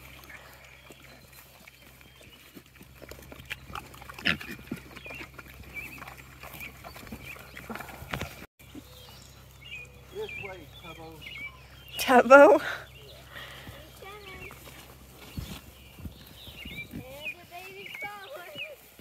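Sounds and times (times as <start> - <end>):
pigs grunting: 0.0 - 8.8
pigs snuffling in grass: 0.0 - 11.9, 12.6 - 19.0.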